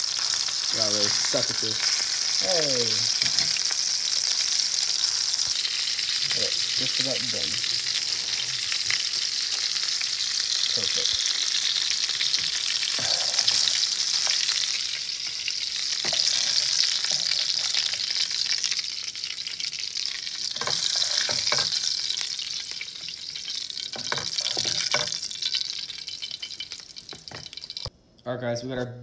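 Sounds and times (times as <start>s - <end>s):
fish fillets sizzling in oil: 0.0s - 27.9s
spatula scraping a pan: 15.9s - 18.2s, 20.5s - 21.9s.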